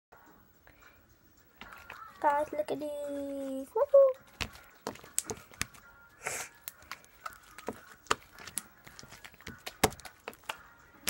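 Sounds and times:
slime popping and clicking: 0:04.9 - 0:05.8.

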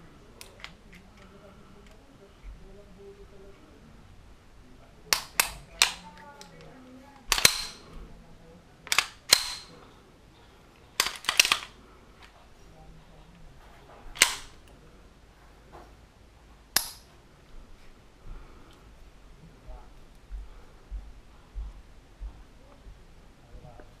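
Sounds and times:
pistol hammer click: 0:07.3 - 0:07.8, 0:08.9 - 0:09.7, 0:16.8 - 0:17.0
pistol slide racking clacks: 0:07.3 - 0:07.8, 0:08.9 - 0:09.8, 0:11.0 - 0:11.7, 0:14.1 - 0:14.6.

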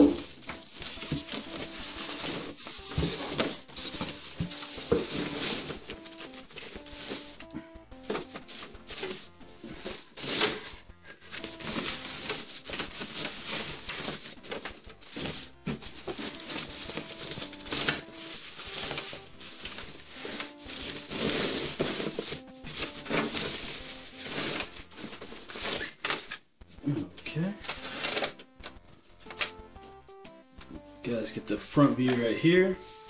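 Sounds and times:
plastic bag rustling: 0:00.0 - 0:26.4
background music: 0:00.0 - 0:33.0.

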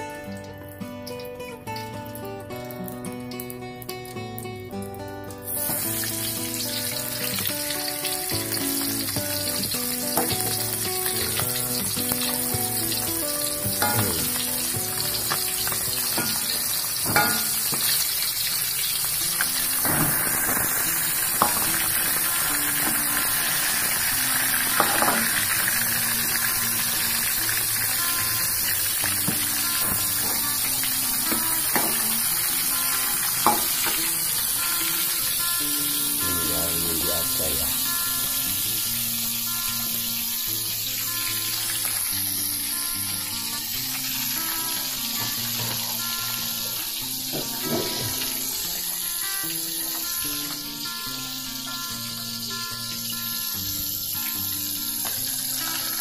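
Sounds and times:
chicken sizzling in hot oil: 0:05.4 - 0:56.0.

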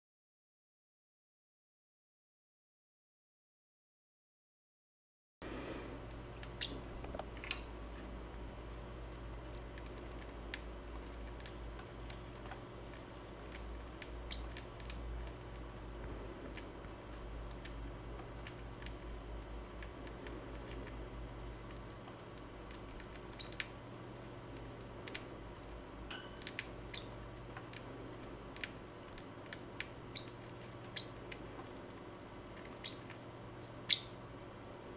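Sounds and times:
bird beak nibbling cereal flake: 0:08.7 - 0:23.8, 0:24.5 - 0:25.3, 0:26.4 - 0:33.2.

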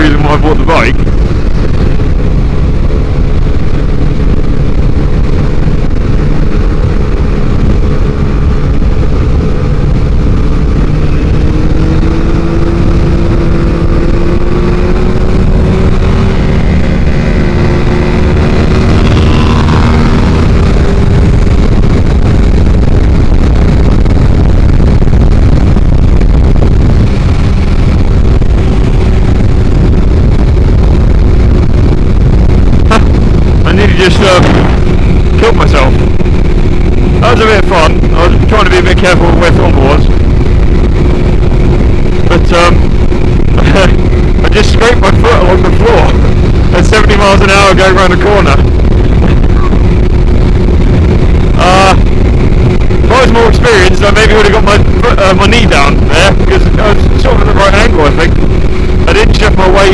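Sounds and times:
heavy wind rush: 0:00.0 - 0:59.9
motorcycle engine cruising: 0:00.0 - 0:59.9.

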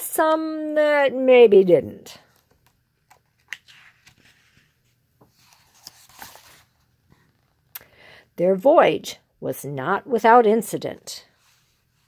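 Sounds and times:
paper page turning: 0:02.3 - 0:07.6.

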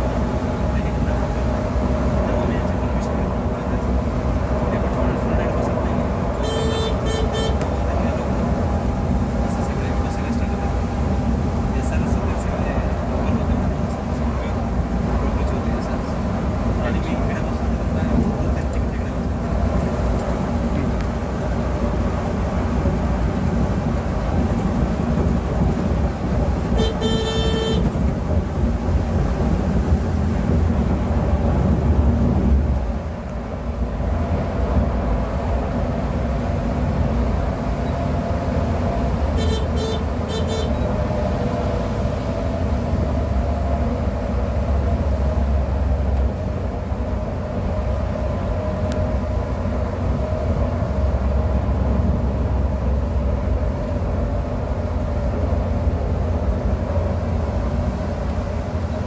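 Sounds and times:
bus engine and road noise drone: 0:00.0 - 0:59.0
horn blasts and honks: 0:06.3 - 0:08.0, 0:26.7 - 0:28.0, 0:39.3 - 0:41.0.

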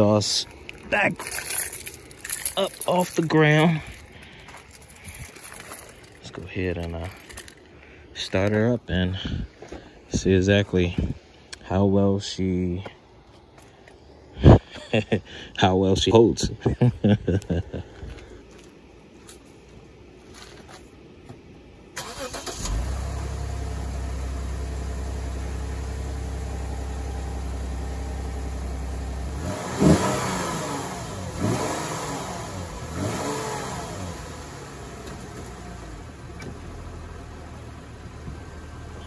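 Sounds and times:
car engine starting and revving: 0:22.0 - 0:39.0.

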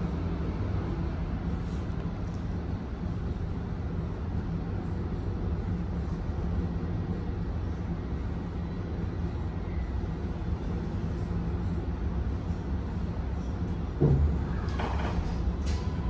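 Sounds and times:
tram rumbling and humming: 0:00.0 - 0:16.0.

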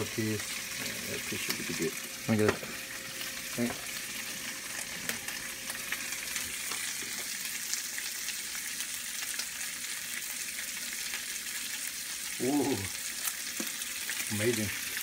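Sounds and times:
meat sizzling in skillets: 0:00.0 - 0:15.0
small pops and crackles: 0:13.2 - 0:14.3.

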